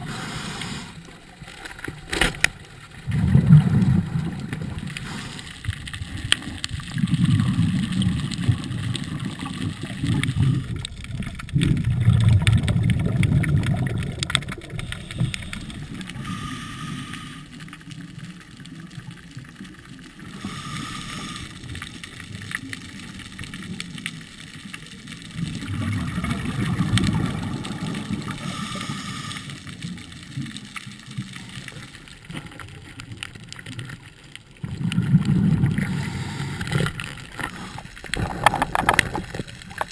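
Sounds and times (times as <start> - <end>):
underwater bubbling exhalations: 2.9 - 19.0, 24.8 - 39.9.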